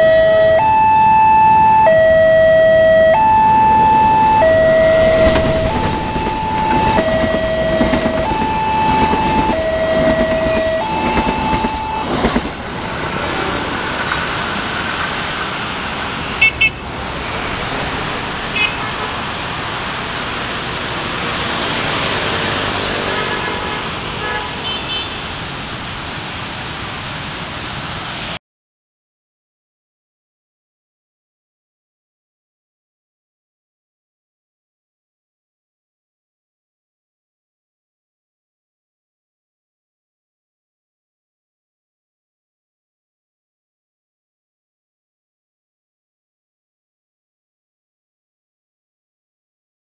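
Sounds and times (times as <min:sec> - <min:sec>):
level crossing alarm: 0:00.0 - 0:12.1
road traffic: 0:00.0 - 0:28.4
diesel train rumbling past: 0:03.5 - 0:27.6.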